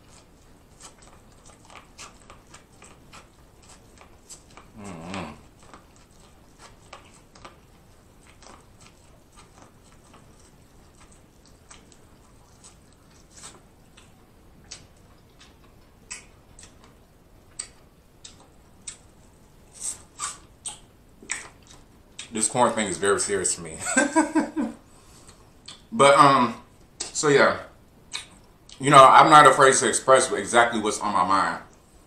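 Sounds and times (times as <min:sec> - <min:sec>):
biting and chewing corn: 0:00.0 - 0:22.7.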